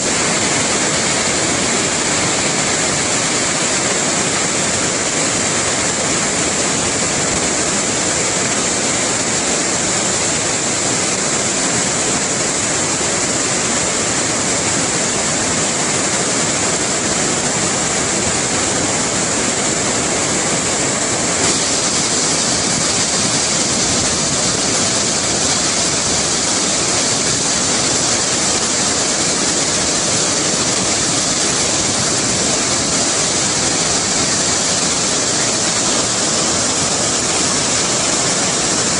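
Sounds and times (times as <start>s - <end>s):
white water rushing over rocks: 0.0s - 38.9s.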